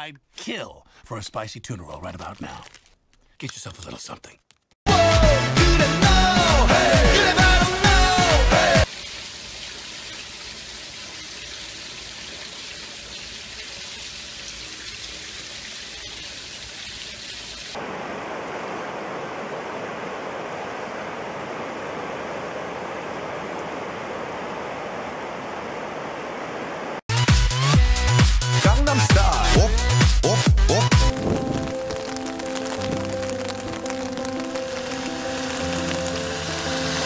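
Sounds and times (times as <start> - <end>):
flooded river rushing: 17.8 - 27.0, 31.1 - 37.0
water spattering onto tiled floor: 31.1 - 37.0.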